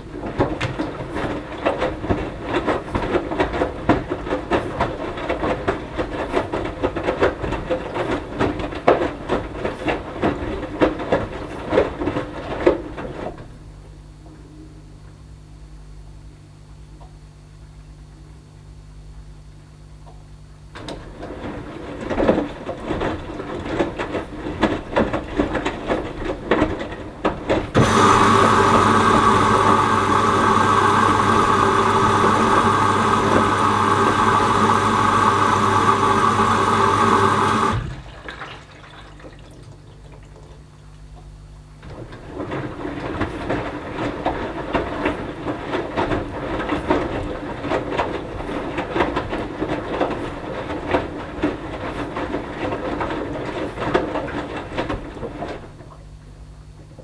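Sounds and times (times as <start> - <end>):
washing machine drum tumbling laundry: 0.0 - 13.9, 20.7 - 57.0
humming rush of water: 27.8 - 40.6.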